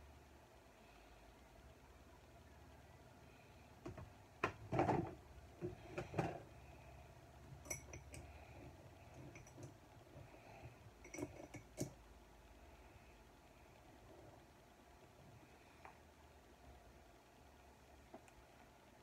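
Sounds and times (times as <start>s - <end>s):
makeup containers clicking and clinking: 11.0s - 12.0s.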